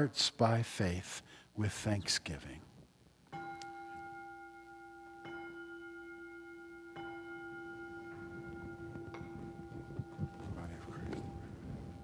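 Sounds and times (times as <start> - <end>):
small bell ringing: 3.4 - 12.0.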